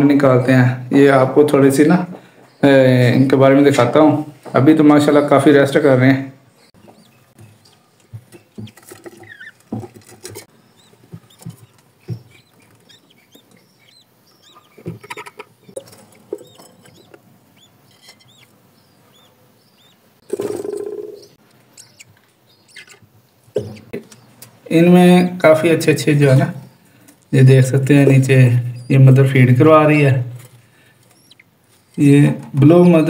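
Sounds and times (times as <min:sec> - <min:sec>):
budgerigars chirping: 0:06.5 - 0:09.7, 0:10.3 - 0:26.4, 0:27.3 - 0:30.2, 0:30.8 - 0:33.0.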